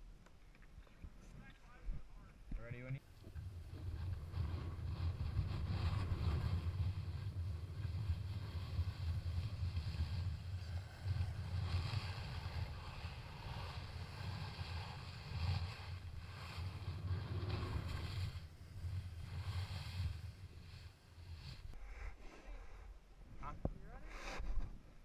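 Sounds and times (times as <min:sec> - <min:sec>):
wind buffeting microphone: 0:03.1 - 0:20.8
snowboard scraping packed snow: 0:03.1 - 0:21.8.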